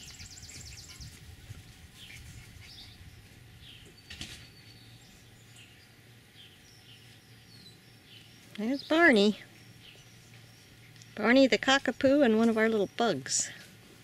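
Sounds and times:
distant bird chirps: 0:02.0 - 0:11.5.

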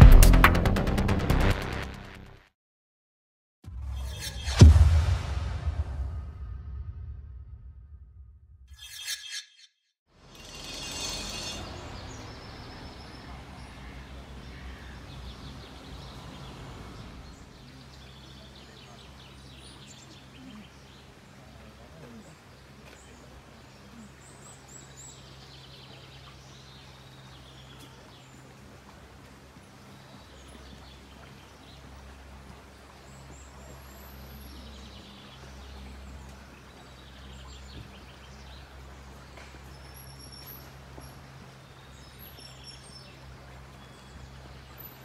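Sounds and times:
low rumble: 0:03.7 - 0:08.7
songbirds chirping: 0:10.2 - 0:45.0.

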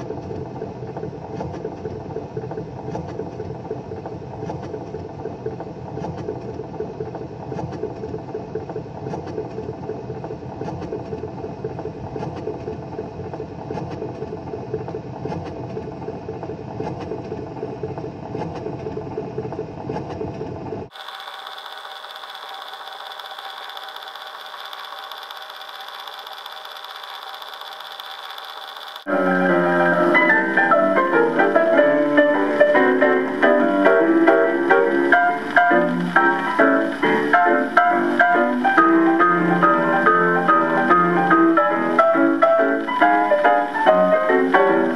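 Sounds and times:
clockwork motor whirring: 0:20.9 - 0:44.9
record hiss with high tone: 0:20.9 - 0:44.9.

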